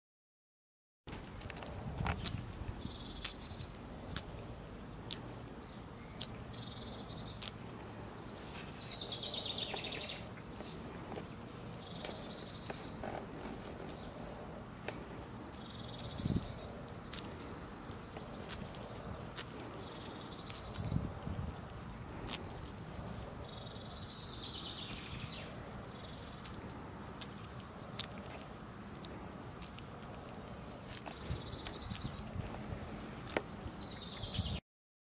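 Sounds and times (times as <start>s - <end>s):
birds chirping: 1.2s - 34.6s
goose tearing off grass: 7.3s - 23.4s, 24.8s - 33.6s.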